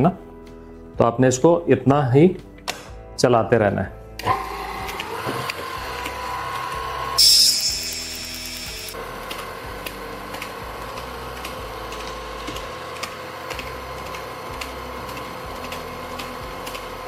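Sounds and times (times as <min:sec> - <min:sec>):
stand mixer motor hum: 0:04.2 - 0:17.0.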